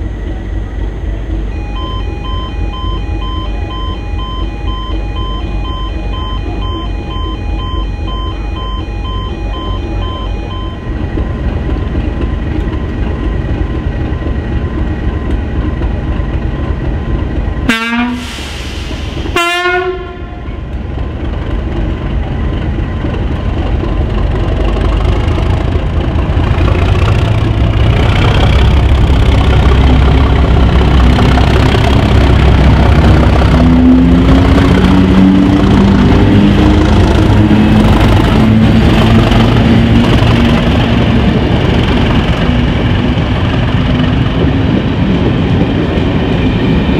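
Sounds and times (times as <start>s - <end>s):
diesel engine rumble: 0.0s - 46.9s
locomotive horn blasts: 17.7s - 18.3s, 19.3s - 20.5s.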